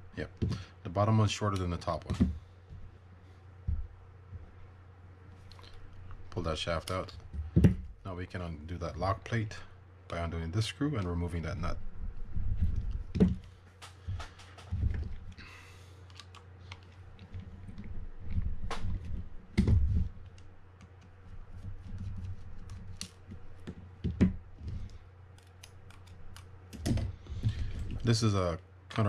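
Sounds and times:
dull handling thumps: 0:03.6 - 0:04.5, 0:07.2 - 0:08.0, 0:12.5 - 0:15.3, 0:17.2 - 0:20.3, 0:21.6 - 0:24.8.

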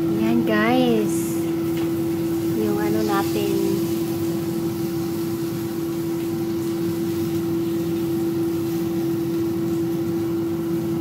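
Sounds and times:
air fryer fan humming: 0:00.0 - 0:11.0.

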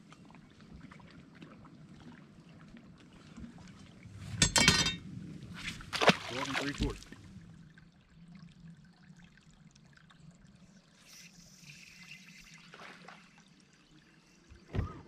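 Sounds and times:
water lapping against boat hull: 0:00.0 - 0:04.4, 0:05.4 - 0:08.2.

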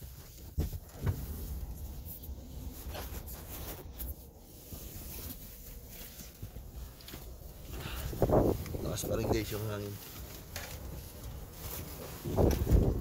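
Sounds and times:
wind buffeting a car: 0:07.7 - 0:09.8, 0:10.8 - 0:13.0.

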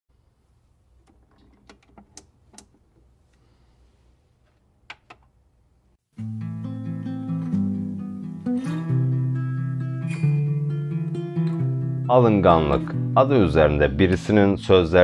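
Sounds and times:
strummed acoustic guitar music: 0:06.2 - 0:14.8.

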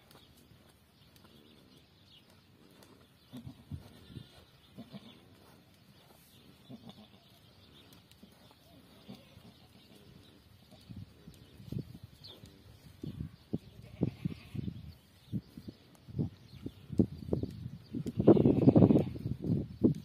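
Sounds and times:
goat giving low calls: 0:03.2 - 0:05.4, 0:06.5 - 0:07.4, 0:08.7 - 0:10.4, 0:13.3 - 0:14.7.

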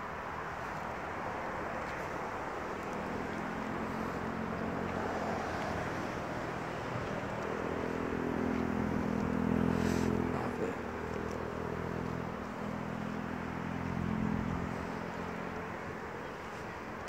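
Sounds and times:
outdoor background noise: 0:00.0 - 0:17.0
low engine drone: 0:02.2 - 0:15.9.

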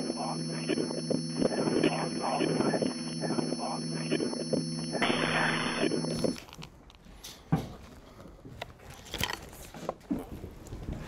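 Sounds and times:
electronic drone with hiss: 0:00.0 - 0:06.4.

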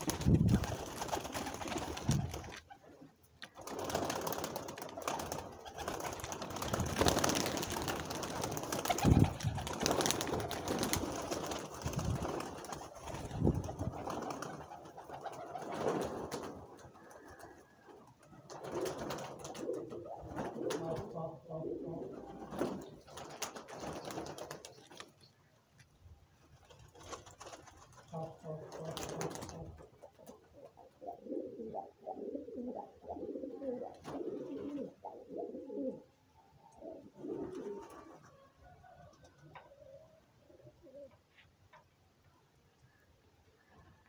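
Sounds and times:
pigeons cooing: 0:13.7 - 0:24.6, 0:28.0 - 0:38.5, 0:39.5 - 0:41.2.

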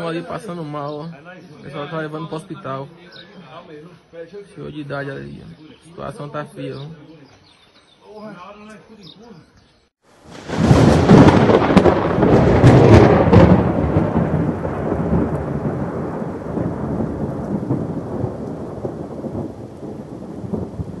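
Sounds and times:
thunder crack and rumble: 0:10.3 - 0:21.0.

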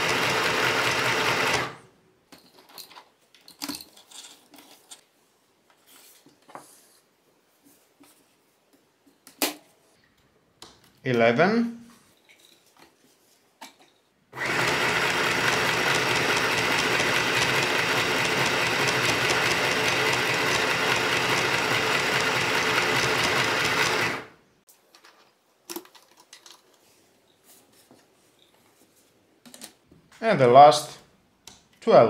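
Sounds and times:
sewing machine stitching: 0:00.0 - 0:01.8, 0:14.4 - 0:24.4.

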